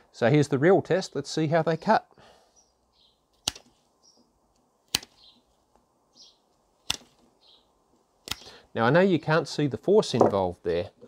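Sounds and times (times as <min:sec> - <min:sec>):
secateurs snapping through twig: 0:03.4 - 0:03.8, 0:04.9 - 0:05.3, 0:06.8 - 0:07.2, 0:08.2 - 0:08.5.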